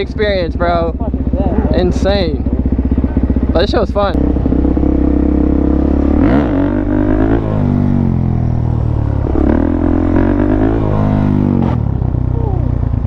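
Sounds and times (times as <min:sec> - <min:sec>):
motorcycle engine revving: 0:00.0 - 0:13.0.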